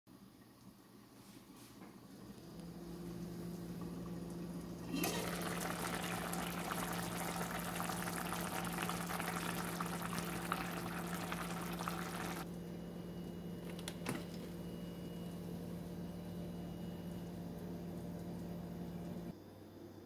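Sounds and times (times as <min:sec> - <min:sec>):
stew bubbling in a pot: 0:02.1 - 0:12.5.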